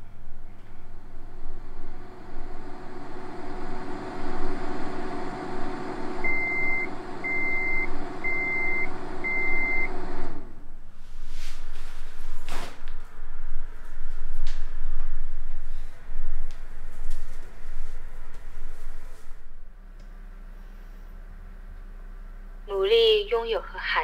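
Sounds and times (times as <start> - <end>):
microwave oven humming: 0.0 - 23.8
microwave timer beeps: 6.0 - 10.1.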